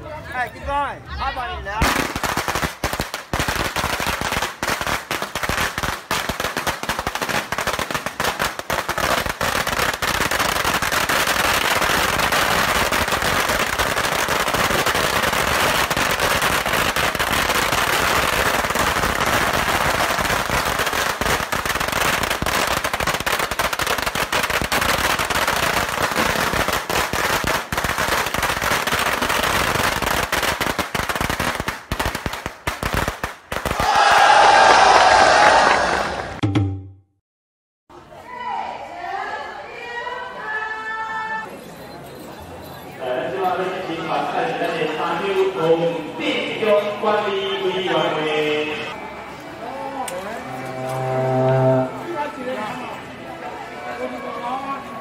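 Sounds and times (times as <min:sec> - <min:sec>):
firecrackers crackling: 0:01.8 - 0:34.0.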